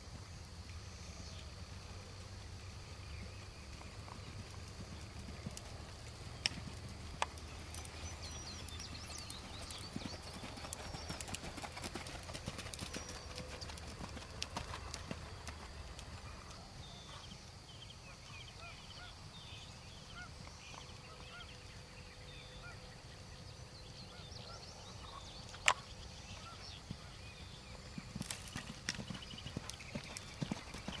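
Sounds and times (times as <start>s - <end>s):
birds chirping: 2.6s - 31.0s.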